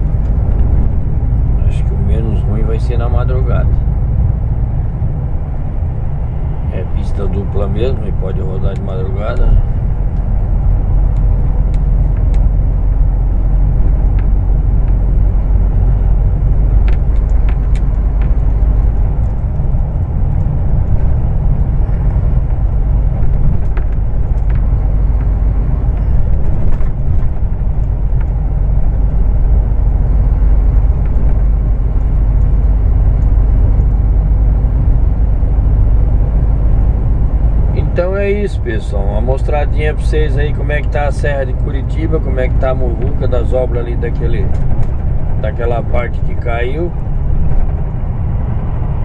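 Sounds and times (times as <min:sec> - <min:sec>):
truck engine and road rumble: 0:00.0 - 0:49.0
faint clicks and rattles: 0:13.7 - 0:35.1, 0:39.4 - 0:47.8.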